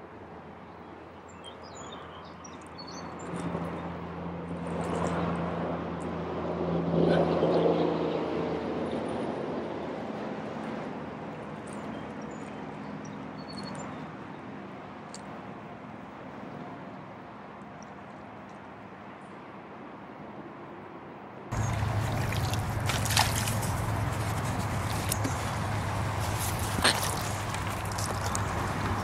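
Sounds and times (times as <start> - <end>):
engine passing by: 3.2 - 11.2, 21.5 - 29.0.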